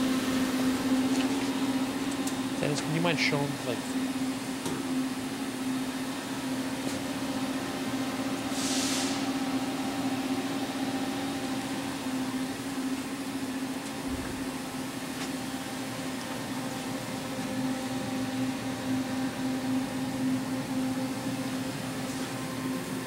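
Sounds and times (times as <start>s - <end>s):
electrical machine hum: 0.0s - 23.0s
brief hiss: 8.5s - 9.2s.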